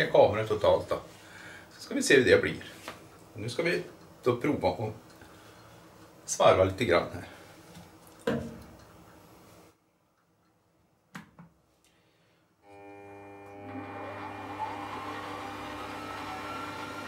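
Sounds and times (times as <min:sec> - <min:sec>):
lathe motor humming: 0:12.7 - 0:17.0.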